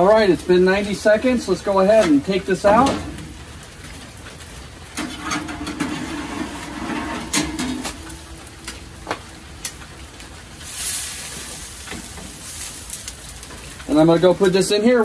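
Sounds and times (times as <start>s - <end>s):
soft hiss: 6.6s - 14.7s.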